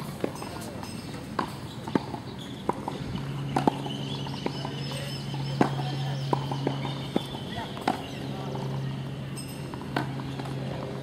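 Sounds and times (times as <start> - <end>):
tennis ball pocks: 1.4 - 8.2.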